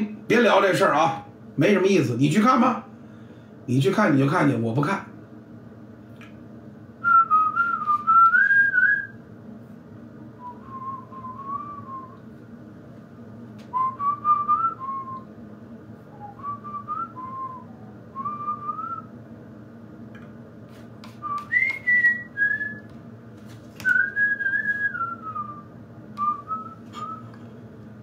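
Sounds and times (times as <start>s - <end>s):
man whistling a tune: 7.0s - 9.2s, 10.4s - 12.2s, 13.7s - 15.3s, 16.1s - 19.1s, 21.2s - 22.9s, 23.8s - 27.3s.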